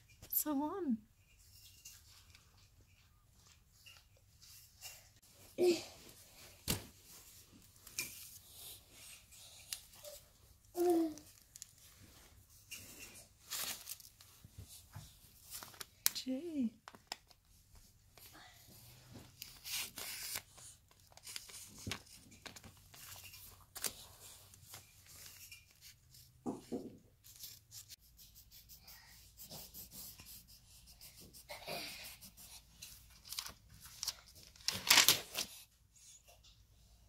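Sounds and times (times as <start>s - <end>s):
paper rustling: 10.8s - 16.2s, 19.1s - 26.4s, 32.0s - 35.6s
pencil scratching on paper: 27.3s - 32.9s.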